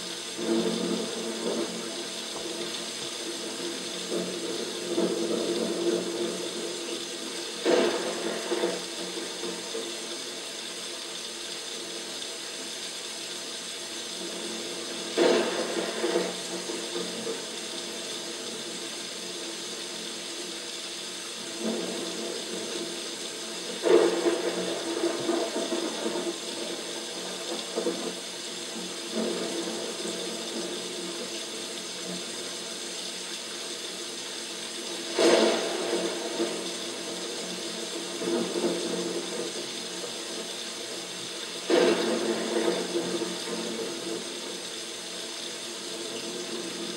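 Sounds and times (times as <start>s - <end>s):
artificial rain pattering: 0.0s - 46.9s.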